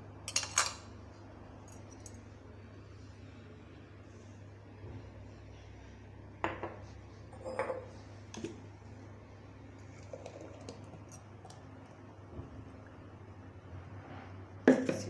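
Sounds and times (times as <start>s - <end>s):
low steady hum: 0.0s - 15.0s
glass jars clinking on counter: 7.4s - 7.9s.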